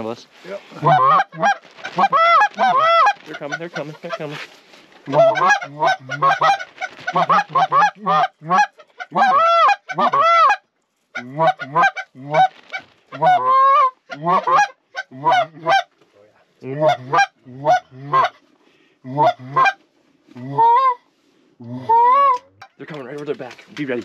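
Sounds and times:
goose calls clucking and honking: 0.8 - 16.0, 16.7 - 18.5, 19.1 - 21.1, 21.7 - 22.8.

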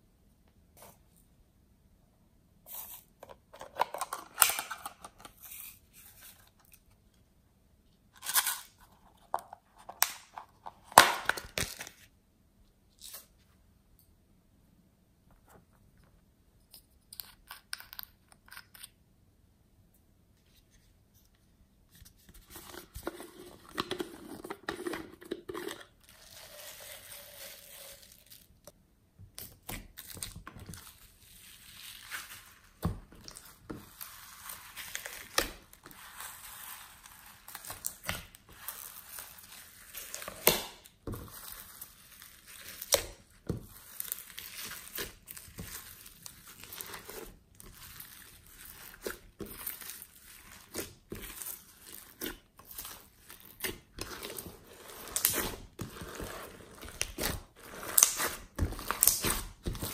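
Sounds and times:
slime squishing and crackling: 29.6 - 59.9.

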